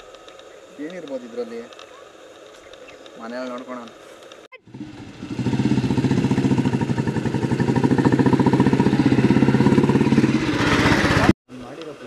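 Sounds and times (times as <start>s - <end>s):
motorcycle engines running: 4.6s - 12.0s.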